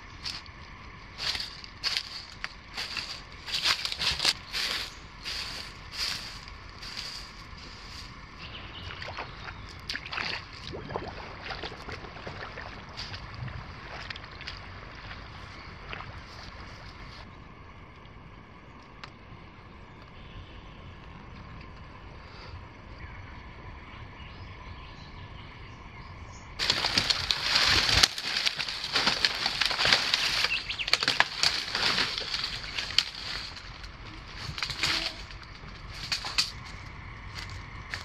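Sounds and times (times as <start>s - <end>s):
footsteps crunching dry leaves: 0.0s - 9.4s, 26.6s - 38.0s.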